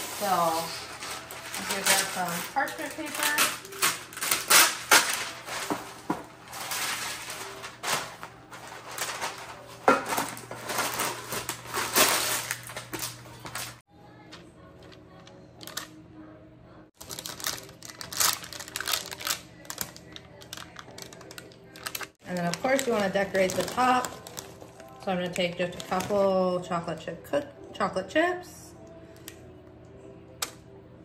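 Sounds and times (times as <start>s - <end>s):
parchment paper crinkling: 0.0s - 13.8s, 15.6s - 15.9s, 17.0s - 26.3s.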